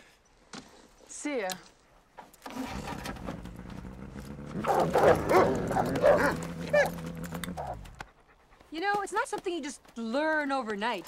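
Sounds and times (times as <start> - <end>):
dogs barking and yipping: 4.6 - 8.6.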